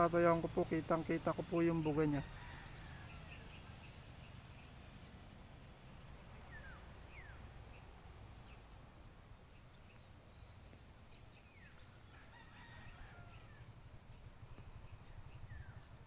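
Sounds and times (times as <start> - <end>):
faint rooster crowing: 1.9 - 4.0, 11.7 - 14.0.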